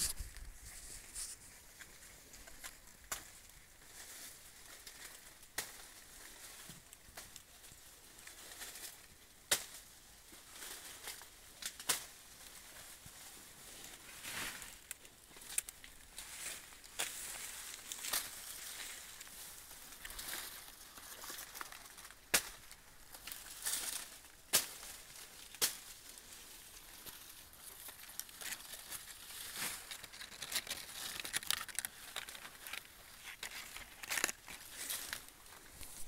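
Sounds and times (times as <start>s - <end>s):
dry corn leaves rustling: 0.0s - 36.0s
stalks snapping: 2.5s - 3.4s, 4.8s - 6.0s, 9.5s - 9.8s, 11.0s - 12.1s, 14.7s - 19.0s, 20.0s - 25.9s, 27.6s - 36.0s.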